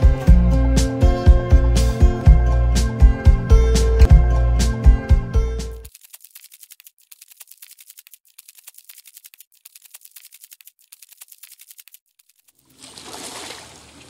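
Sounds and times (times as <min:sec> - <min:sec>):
background music: 0:00.0 - 0:05.9
rapid faint clicks: 0:05.9 - 0:12.6.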